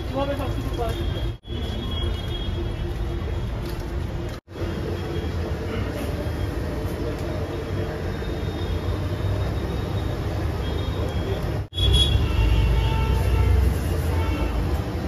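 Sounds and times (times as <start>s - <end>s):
city traffic rumble: 0.0s - 15.0s.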